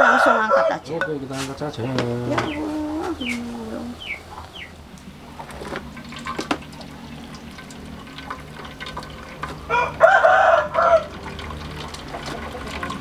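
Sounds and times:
rooster crowing: 0.0 - 0.9, 9.6 - 11.2
utensil knocking against pots: 0.9 - 2.6.

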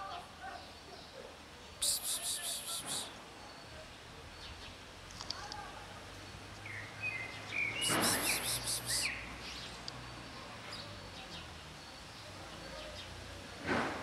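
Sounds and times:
small bird chirping: 1.8 - 3.2, 6.7 - 10.1.

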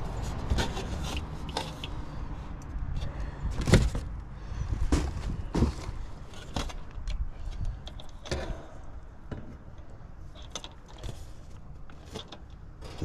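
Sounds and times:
metal clicks and rattles: 9.7 - 11.2.

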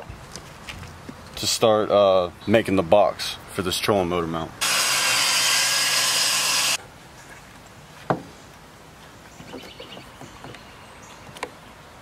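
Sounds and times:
table saw cutting wood: 4.6 - 6.8.

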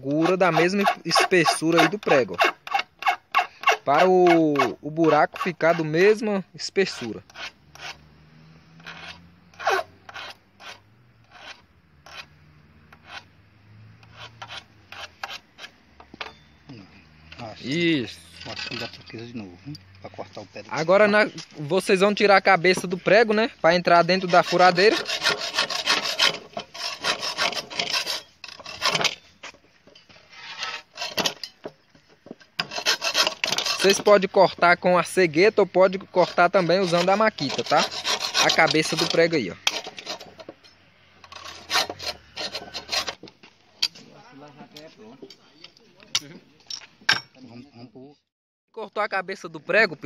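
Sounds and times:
hand file rasping on steel: 0.0 - 6.2, 6.8 - 8.1, 8.8 - 13.3, 13.9 - 15.8, 22.8 - 29.2, 30.3 - 31.6, 32.6 - 34.2, 35.9 - 40.5, 41.2 - 43.2.

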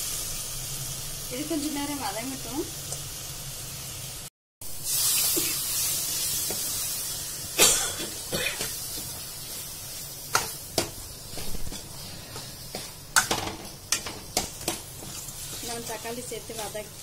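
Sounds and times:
onions sizzling in hot oil: 0.0 - 17.0
ladle scraping a pan: 15.0 - 16.8.

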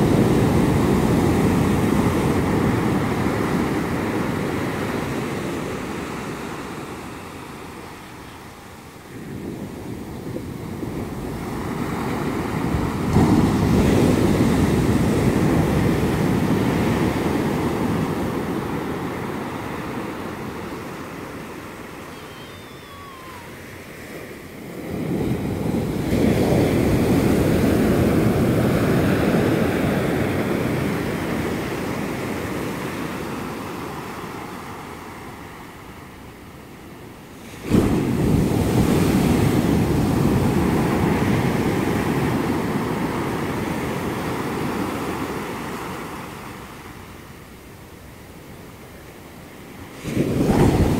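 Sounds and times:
ocean waves crashing: 0.0 - 50.9
foam washing up sand: 37.4 - 43.7, 49.9 - 50.9.

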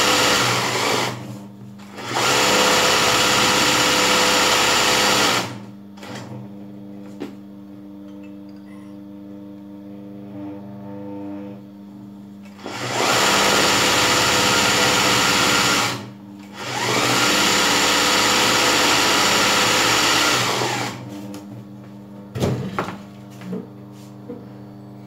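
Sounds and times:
sewing machine stitching: 0.0 - 1.2, 1.8 - 6.3, 12.5 - 21.0.

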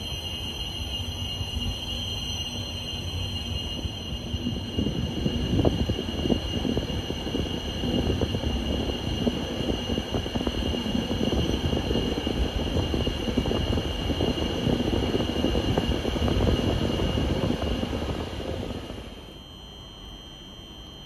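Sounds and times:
thin steady whine: 0.0 - 21.0.

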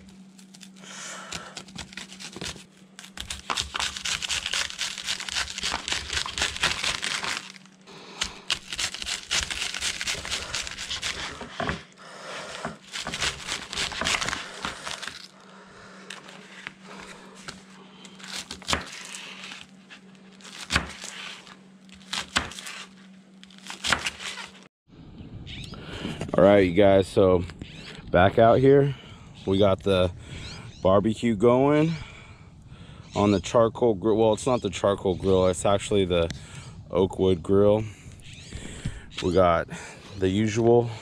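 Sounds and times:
knife slicing cabbage: 1.3 - 7.6, 8.2 - 15.3, 17.4 - 24.7.

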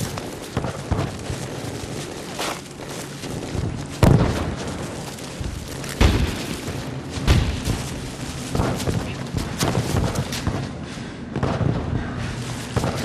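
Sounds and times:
gunfire: 6.0 - 10.7.

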